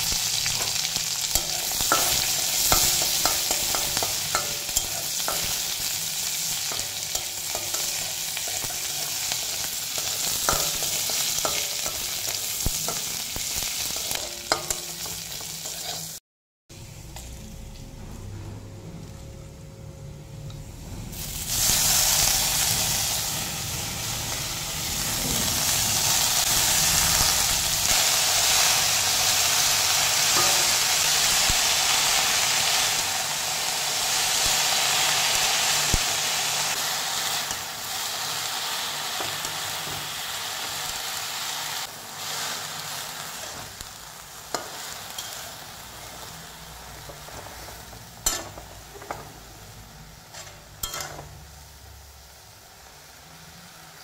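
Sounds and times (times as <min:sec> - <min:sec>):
greens sizzling in hot oil: 0:00.0 - 0:16.2, 0:21.2 - 0:54.0
metal spatula scraping wok: 0:00.0 - 0:16.2, 0:44.5 - 0:49.4, 0:50.3 - 0:51.4.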